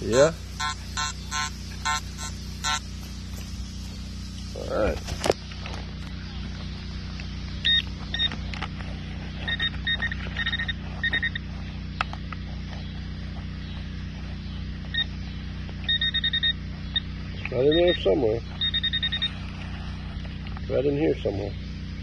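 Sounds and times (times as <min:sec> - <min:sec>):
steady low hum: 0:00.0 - 0:22.0
metal detector beeps: 0:00.1 - 0:02.8, 0:07.6 - 0:08.4, 0:09.4 - 0:11.5, 0:14.9 - 0:15.2, 0:15.8 - 0:17.1, 0:17.7 - 0:19.4.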